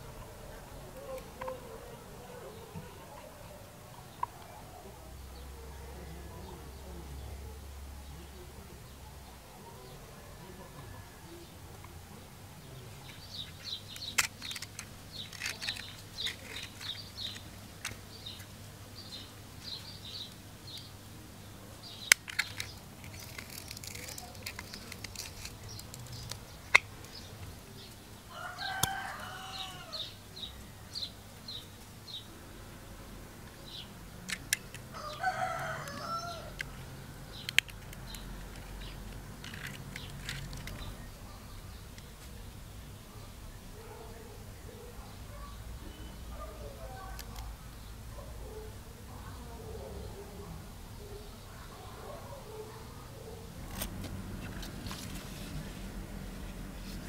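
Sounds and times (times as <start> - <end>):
small birds chirping: 0.1 - 55.7
handling clicks and rustle: 12.9 - 20.9, 21.9 - 28.0, 33.4 - 42.4, 53.6 - 57.0
rooster crowing: 28.3 - 30.2, 34.9 - 36.6.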